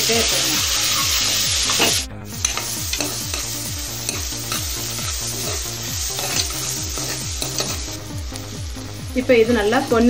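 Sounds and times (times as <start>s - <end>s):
onions sizzling in hot oil: 0.0s - 10.0s
metal ladle scraping pan: 4.1s - 7.9s.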